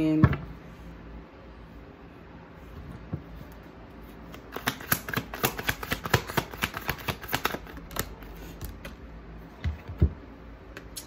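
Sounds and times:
cards being shuffled: 3.5 - 9.0.

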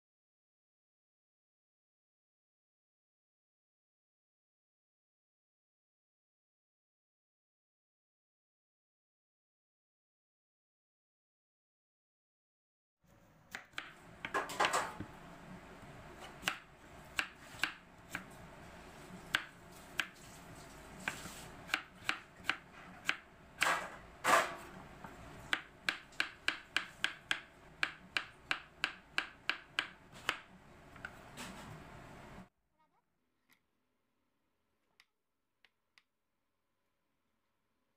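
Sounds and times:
knife chopping on wooden board: 13.5 - 15.1, 16.2 - 18.4, 19.1 - 20.4, 21.0 - 31.2.

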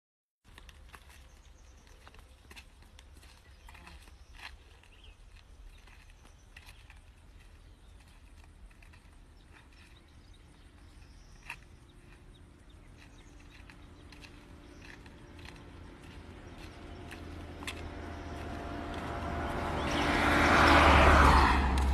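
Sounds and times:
low engine hum: 0.7 - 21.9
low steady rumble: 7.1 - 20.0.

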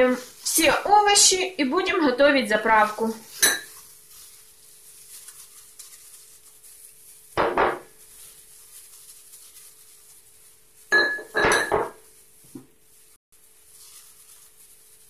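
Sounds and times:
metal bowl and glass dishes clattering: 3.3 - 3.8, 10.9 - 12.0.

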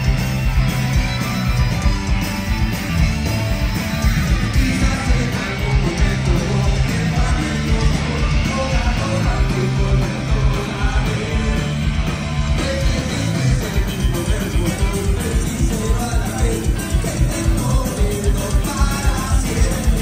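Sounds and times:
fast drum beat: 0.0 - 20.0
punk rock band playing: 0.0 - 20.0
person singing: 4.5 - 20.0.

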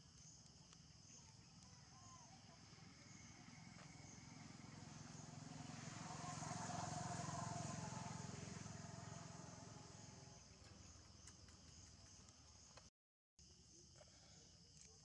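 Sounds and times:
passing vehicle engine hum: 2.2 - 11.2.

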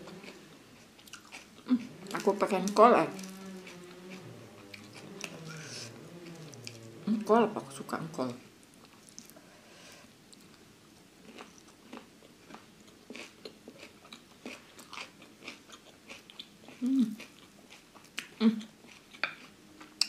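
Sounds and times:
chewing crunchy food: 0.0 - 6.8, 8.6 - 9.4, 10.3 - 20.0
person humming briefly: 16.8 - 17.2.

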